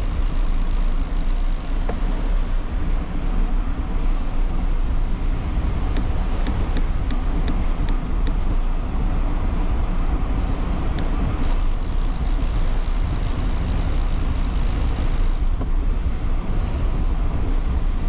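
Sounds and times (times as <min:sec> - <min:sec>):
wind buffeting microphone: 0:00.0 - 0:18.0
sharp ticks: 0:05.9 - 0:08.4, 0:10.9 - 0:15.7.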